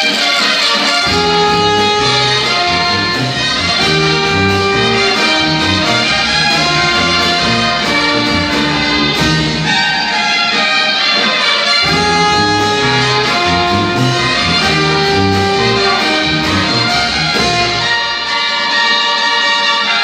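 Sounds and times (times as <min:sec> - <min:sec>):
brass band music: 0:00.0 - 0:20.0
trumpets and trombones holding notes: 0:00.0 - 0:20.0
bass line: 0:01.0 - 0:09.9, 0:11.8 - 0:18.2.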